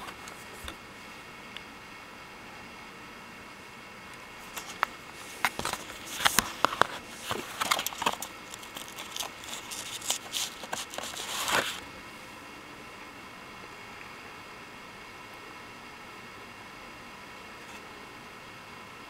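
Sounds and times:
plastic seal crinkling and tearing: 4.5s - 11.8s.

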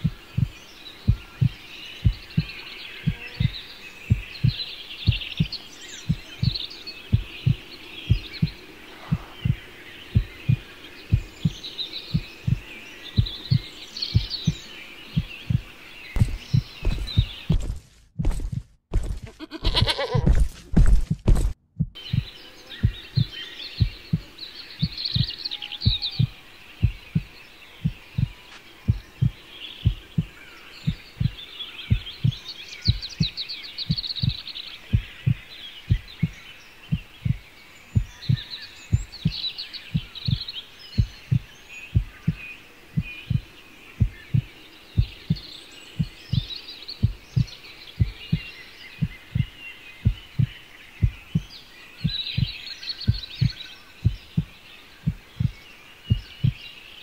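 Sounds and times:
heartbeat thumps: 0.0s - 56.7s
songbirds chirping: 0.0s - 57.0s.

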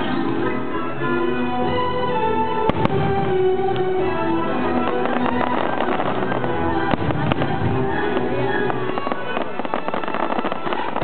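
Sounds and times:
music soundtrack: 0.0s - 11.0s
fireworks bursting and crackling: 2.5s - 11.0s.

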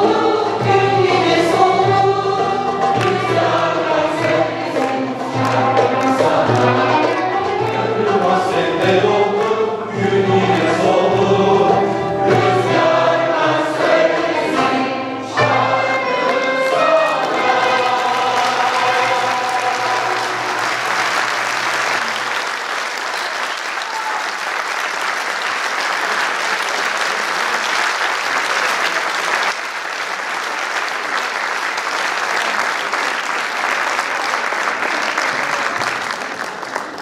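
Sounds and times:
choir and instruments final chord: 7.6s - 22.2s
audience applauding: 16.2s - 37.0s.

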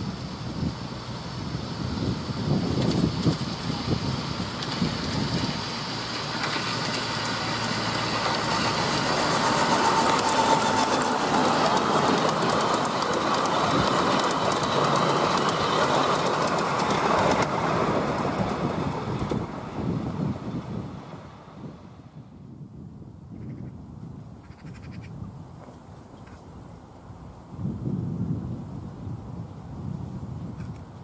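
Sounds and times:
train wheels clattering over rail joints: 2.6s - 19.7s.

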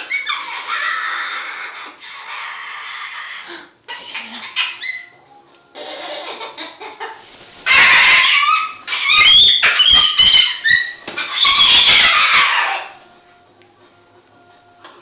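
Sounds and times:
cockatoo screeching: 0.0s - 5.2s, 7.6s - 13.0s.

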